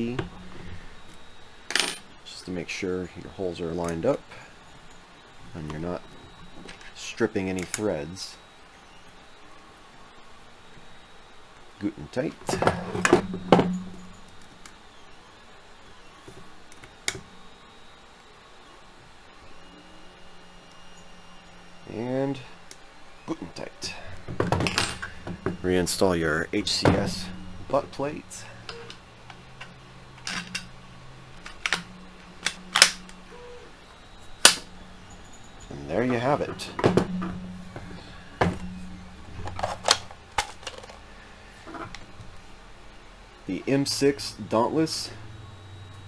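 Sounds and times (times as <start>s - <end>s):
sharp click: 31.4s - 33.2s.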